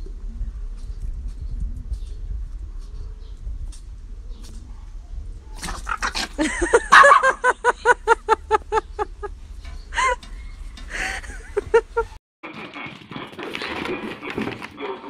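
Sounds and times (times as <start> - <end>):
dog yapping: 5.6 - 7.5.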